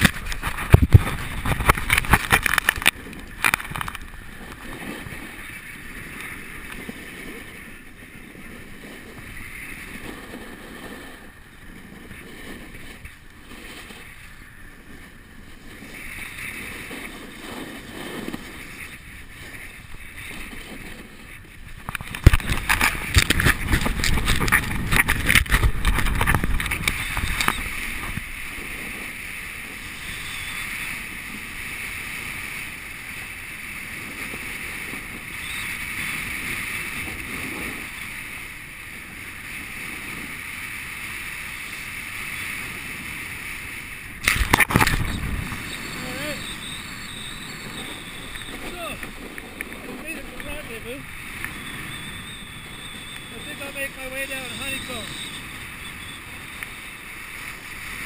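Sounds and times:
skis scraping over snow: 0:00.0 - 0:58.0
wind buffeting microphone: 0:00.0 - 0:58.0.

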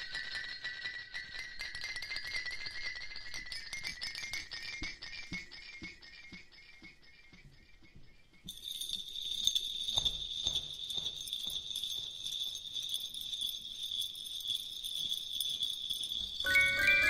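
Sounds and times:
jingle bells shaken: 0:00.0 - 0:04.8, 0:08.5 - 0:17.0.

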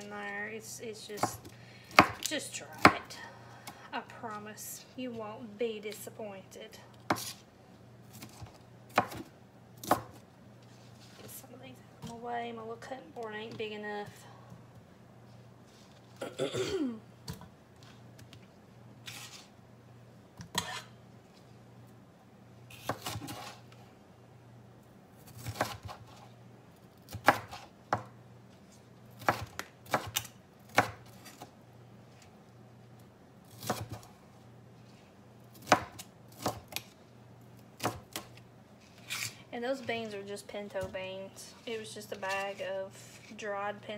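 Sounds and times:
knife chopping on cutting board: 0:07.1 - 0:07.4, 0:08.1 - 0:10.2, 0:25.3 - 0:26.2, 0:27.1 - 0:28.1, 0:33.5 - 0:34.1, 0:35.5 - 0:36.9.

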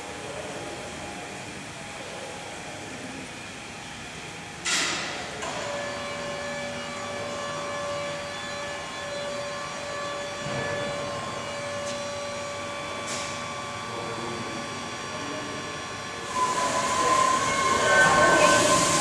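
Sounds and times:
steam engine mechanical hum: 0:05.0 - 0:19.0
steam hissing: 0:16.2 - 0:19.0.

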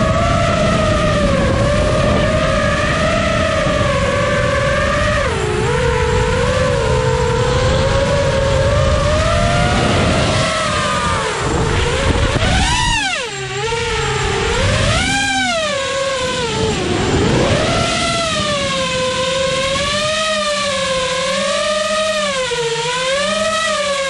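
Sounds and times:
quadcopter motors whining: 0:00.0 - 0:24.0.

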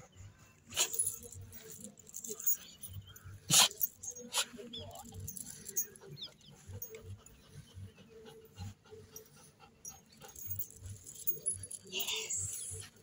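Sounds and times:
dog panting softly: 0:04.2 - 0:13.0.

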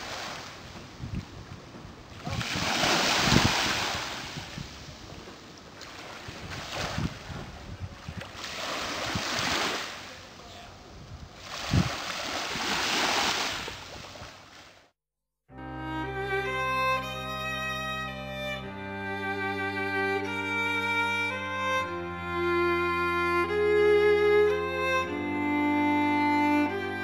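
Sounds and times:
wind buffeting microphone: 0:00.0 - 0:09.8, 0:10.5 - 0:14.3
waves washing on sandy beach: 0:00.0 - 0:10.6, 0:11.3 - 0:14.8.

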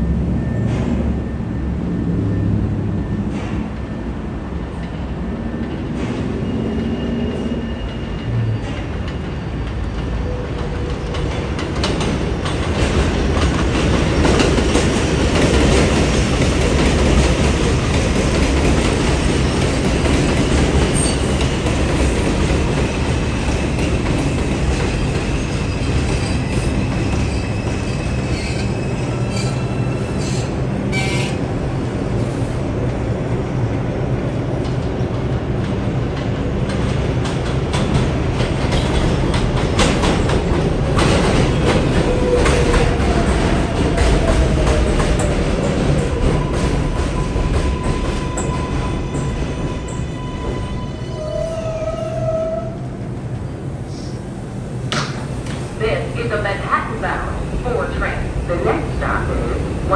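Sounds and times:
train wheels rumbling on rails: 0:00.0 - 0:59.9
high wheel squeal: 0:25.4 - 0:31.4.

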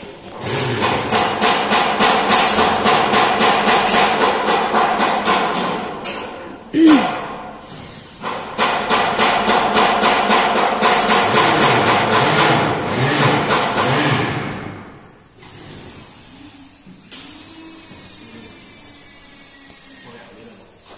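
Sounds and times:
machine rhythmic pulsing hiss: 0:15.2 - 0:20.9.

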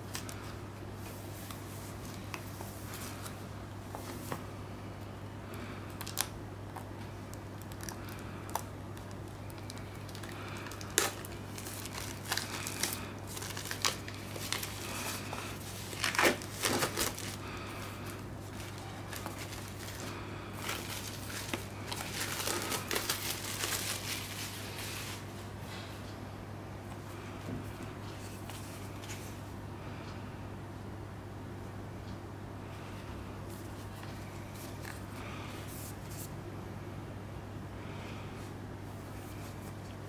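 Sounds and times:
plastic shrink-wrap crinkling: 0:05.9 - 0:06.4, 0:07.3 - 0:25.2.

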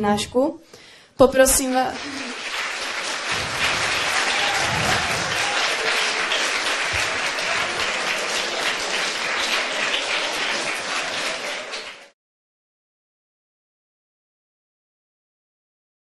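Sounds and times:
audience applauding: 0:01.6 - 0:12.2.

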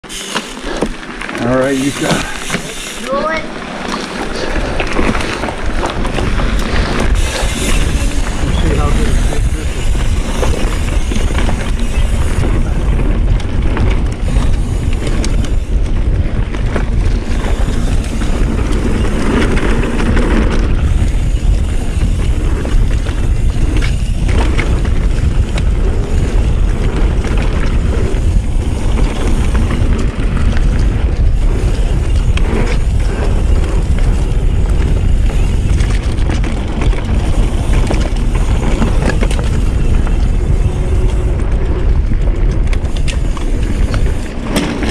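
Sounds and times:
bike rattling and clicking: 0:00.0 - 0:44.9
tyres rumbling over dirt: 0:00.0 - 0:44.9
wind buffeting microphone: 0:04.2 - 0:44.9.

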